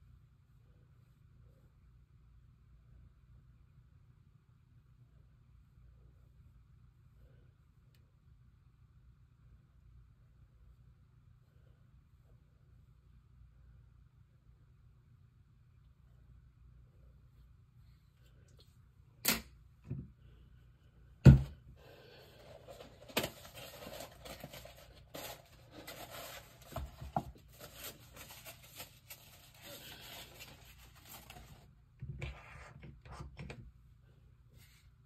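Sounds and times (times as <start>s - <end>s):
rustling and scraping: 22.0s - 33.6s.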